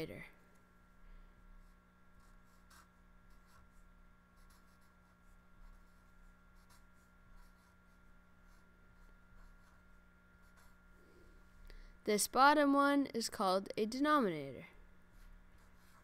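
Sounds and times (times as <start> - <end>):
faint steady hum: 0.0 - 16.0
marker scratching on paper: 1.5 - 10.8, 15.1 - 16.0.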